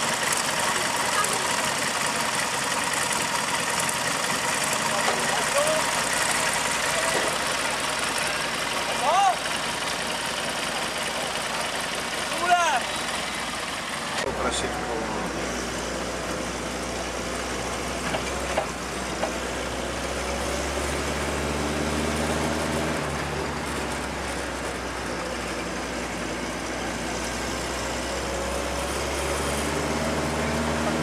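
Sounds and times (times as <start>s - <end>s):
road noise: 0.0s - 31.0s
vehicle engine from inside cab: 12.6s - 31.0s.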